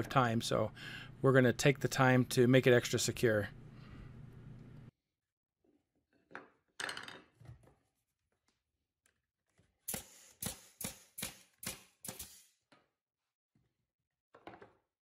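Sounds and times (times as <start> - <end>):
pneumatic stapler firing: 9.9 - 12.6.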